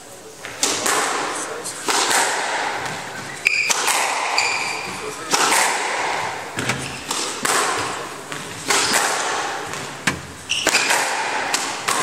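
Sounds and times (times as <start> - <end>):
squash ball cracking off walls: 0.6 - 12.0
shoes squeaking on hardwood floor: 2.8 - 5.3, 6.2 - 9.0, 9.6 - 11.0.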